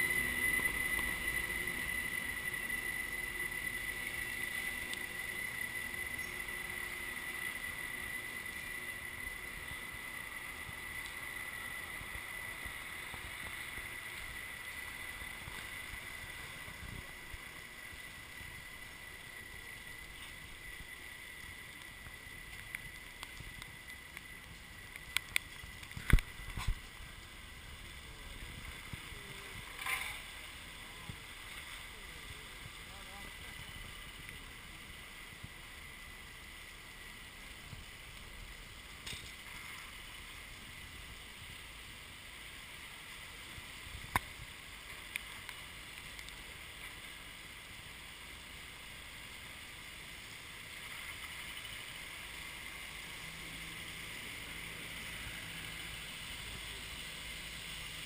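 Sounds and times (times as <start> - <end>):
vehicle running and road noise: 0.0 - 33.1, 49.2 - 58.0
high whine: 0.0 - 58.0.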